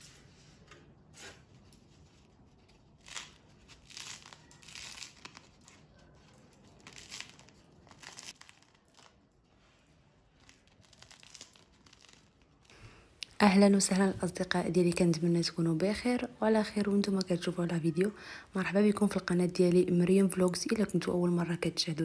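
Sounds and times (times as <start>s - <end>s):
bread roll crackling and tearing: 1.4s - 13.0s.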